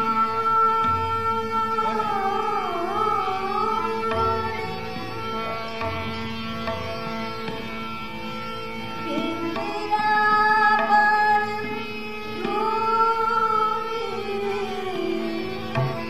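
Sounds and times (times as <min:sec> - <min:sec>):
woman singing classical vocals: 0:00.0 - 0:04.7, 0:09.0 - 0:15.7
tabla: 0:00.0 - 0:16.0.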